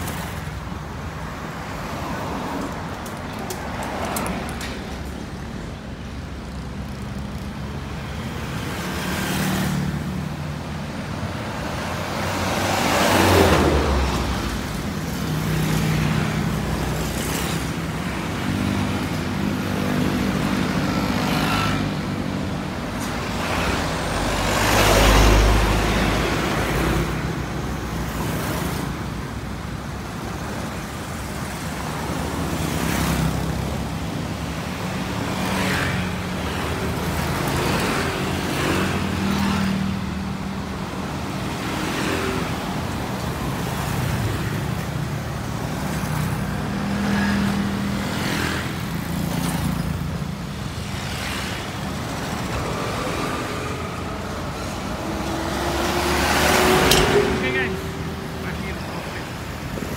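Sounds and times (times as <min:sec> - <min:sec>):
road traffic passing: 0:00.0 - 0:59.9
heavy truck passing: 0:52.2 - 0:59.9.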